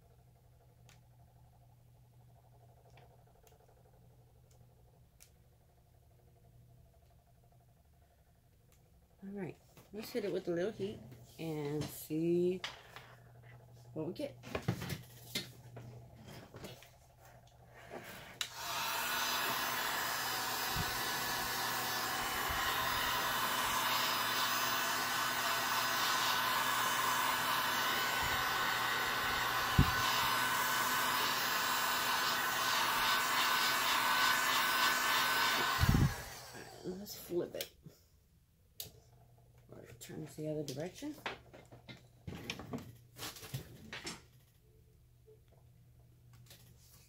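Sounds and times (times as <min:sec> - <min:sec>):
heat gun blowing: 0:17.9 - 0:37.1.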